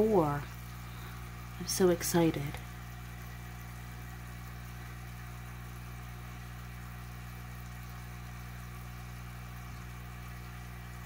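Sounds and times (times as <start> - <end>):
aquarium filter pump humming: 0.0 - 11.0.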